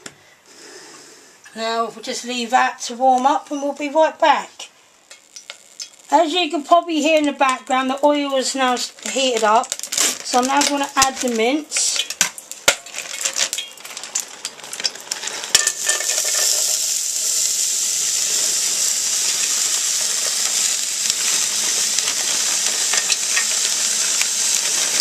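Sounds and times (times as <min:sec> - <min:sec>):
meat sizzling in hot oil: 0:05.0 - 0:25.0
plastic packet rustling: 0:08.3 - 0:16.8, 0:19.4 - 0:25.0.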